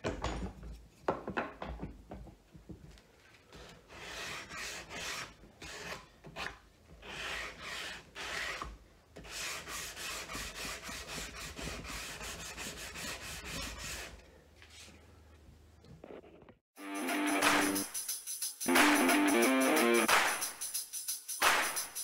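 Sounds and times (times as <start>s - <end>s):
sandpaper rasping on wood: 3.9s - 14.2s.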